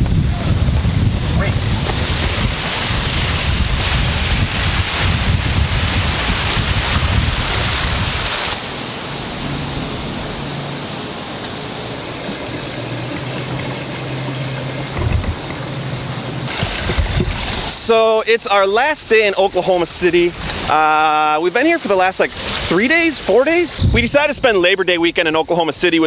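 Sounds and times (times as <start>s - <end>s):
wind buffeting microphone: 0.0s - 17.7s, 22.3s - 24.8s
outdoor hiss: 0.0s - 26.0s.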